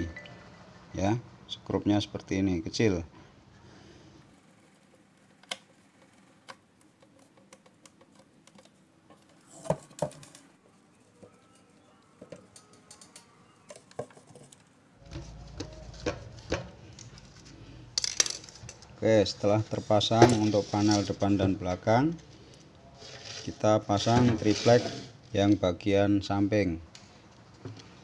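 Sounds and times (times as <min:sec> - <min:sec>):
low handling rumble: 0:15.0 - 0:18.0.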